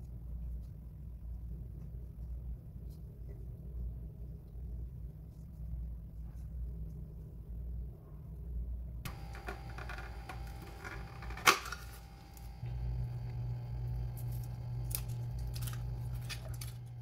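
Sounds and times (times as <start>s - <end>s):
low steady hum: 0.0s - 17.0s
foil rustling and crinkling: 14.1s - 17.0s.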